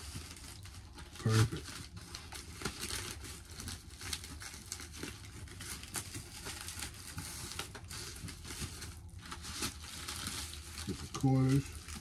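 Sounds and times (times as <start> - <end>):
paper packaging crinkling: 0.0 - 12.0.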